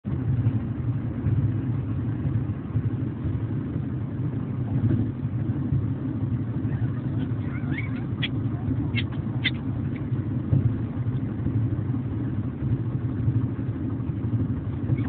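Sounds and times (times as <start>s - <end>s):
vehicle rumbling: 0.0s - 15.0s
puppies whimpering: 6.5s - 10.2s.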